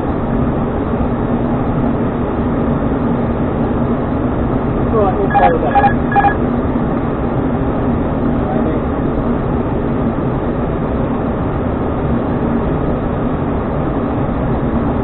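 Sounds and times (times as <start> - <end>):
low steady hum: 4.9 - 6.4.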